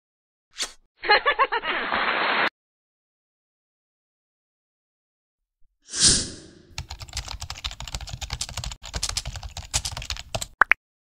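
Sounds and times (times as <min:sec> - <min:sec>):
rapid irregular clicks: 0:06.8 - 0:10.6.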